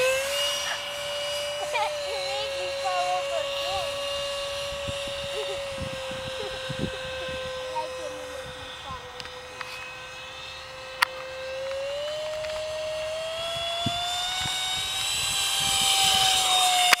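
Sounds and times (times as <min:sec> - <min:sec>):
light aircraft engine whine: 0:00.0 - 0:17.0.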